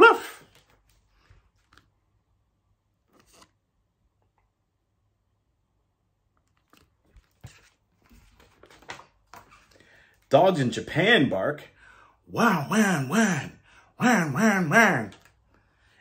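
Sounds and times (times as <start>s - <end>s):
book rustling and knocking: 6.5s - 9.8s.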